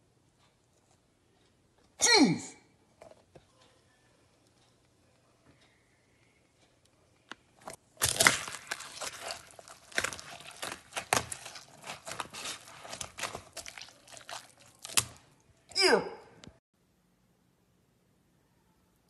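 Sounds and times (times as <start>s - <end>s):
paper cup crinkling and crunching: 7.7s - 15.4s.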